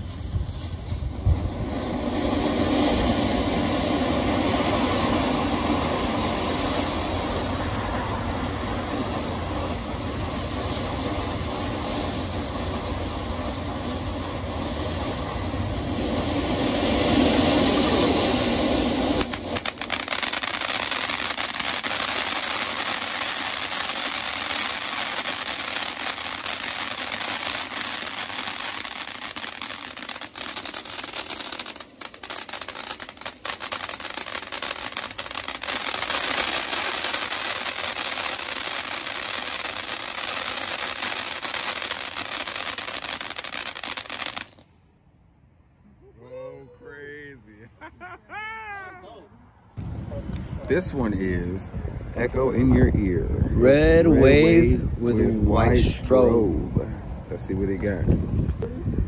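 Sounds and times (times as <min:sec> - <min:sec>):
firework fountain hissing spray: 0:00.0 - 0:44.7.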